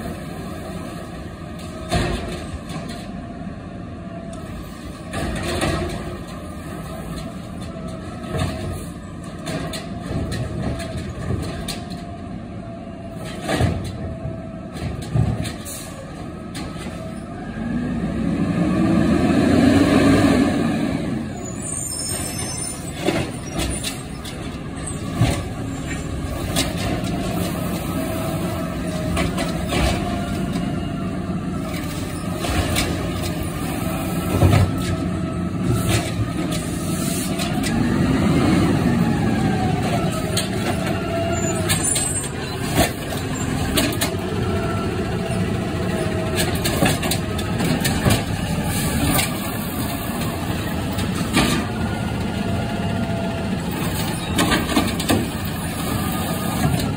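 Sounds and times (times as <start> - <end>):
garbage truck engine running: 0.0 - 56.9
air brakes hissing: 35.8 - 37.4.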